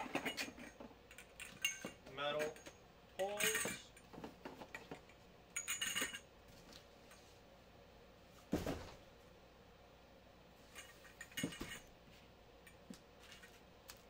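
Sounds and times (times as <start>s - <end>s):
metal poles and plastic clinking: 0.0s - 6.3s
dull thump: 8.5s - 9.0s.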